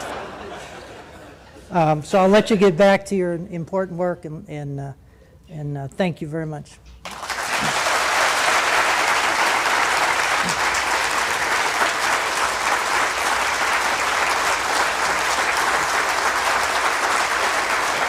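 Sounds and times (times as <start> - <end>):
audience applauding: 7.0 - 18.0.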